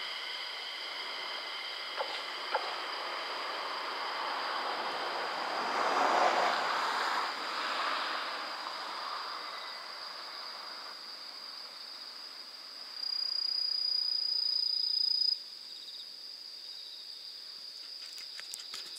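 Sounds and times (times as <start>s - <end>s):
high insect trill: 0.0s - 18.9s.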